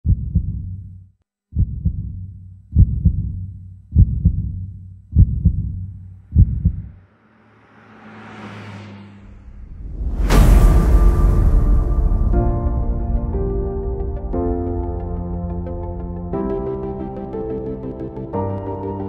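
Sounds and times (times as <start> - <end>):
heartbeat thumps: 0.0 - 0.9, 1.5 - 7.0
low hum: 1.6 - 17.4
rising whoosh: 7.0 - 14.4.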